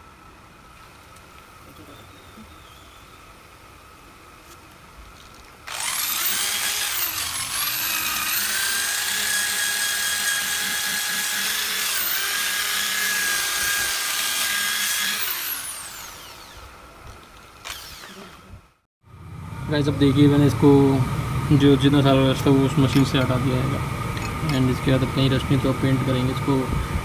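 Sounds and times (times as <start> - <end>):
electric drill wire brush scrubbing: 5.2 - 18.6.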